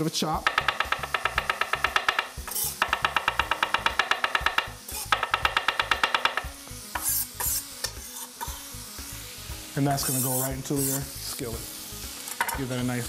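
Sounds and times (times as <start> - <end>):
blade scraping cutting board: 2.4 - 3.0, 7.0 - 8.6.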